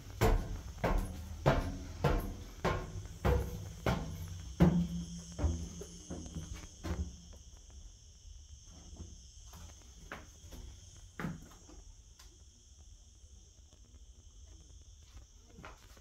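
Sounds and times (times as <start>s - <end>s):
footsteps on tiled floor: 0.0s - 7.7s, 14.6s - 16.0s
insects droning: 0.0s - 16.0s.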